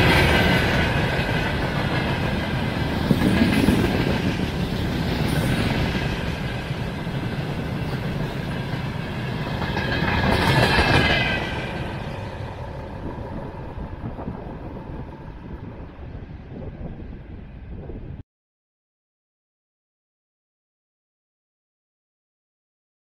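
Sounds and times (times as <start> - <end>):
train wheels clattering over joints: 0.0 - 13.1.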